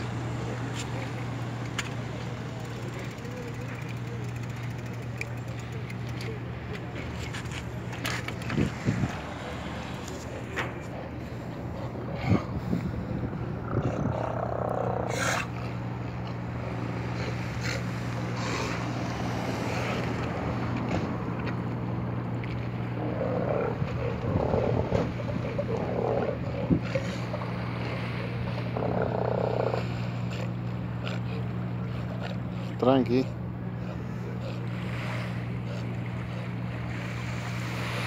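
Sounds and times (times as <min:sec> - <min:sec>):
steady low hum: 0:00.0 - 0:38.0
sea lions calling: 0:22.8 - 0:38.0.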